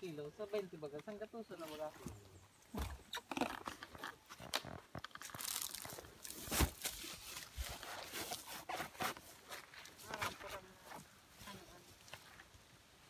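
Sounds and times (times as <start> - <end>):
plastic sack rustling: 4.6 - 10.5.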